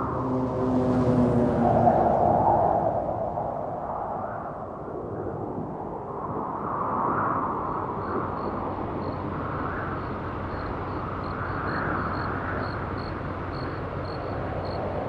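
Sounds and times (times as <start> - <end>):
distant city traffic hum: 0.0 - 4.0, 7.6 - 15.0.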